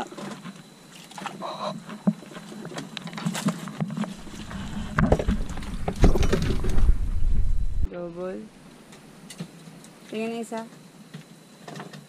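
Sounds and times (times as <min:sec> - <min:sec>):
low rumble: 0:04.2 - 0:07.9
rain pattering: 0:04.2 - 0:07.9.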